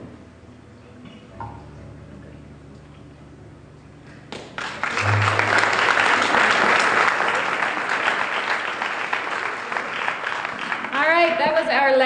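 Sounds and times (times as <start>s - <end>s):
audience applauding: 4.3s - 11.8s.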